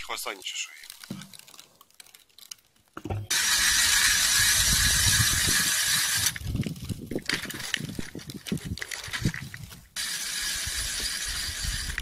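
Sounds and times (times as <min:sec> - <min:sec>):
ice auger grinding through ice: 0:03.3 - 0:06.5, 0:09.2 - 0:12.0.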